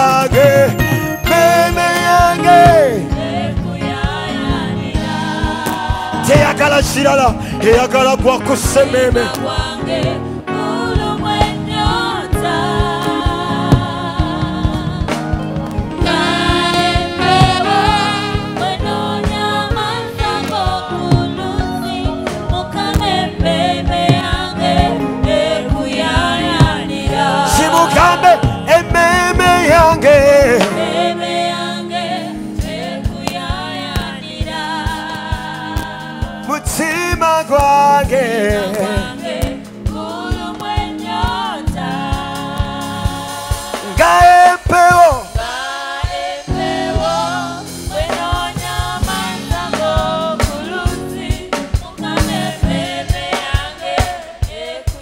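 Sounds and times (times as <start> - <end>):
lead singer holding wavering notes: 0.0 - 3.3
steady drum beat: 0.0 - 31.4, 32.6 - 55.0
choir singing: 0.0 - 55.0.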